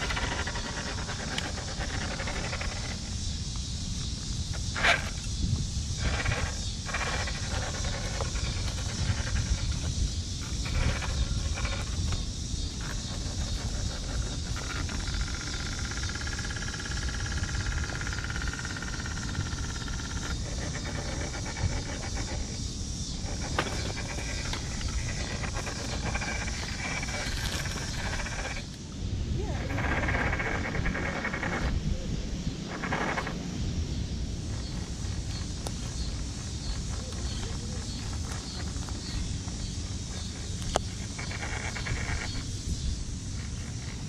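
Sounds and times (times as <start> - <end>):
rc car electric motor whining: 0.0 - 28.8.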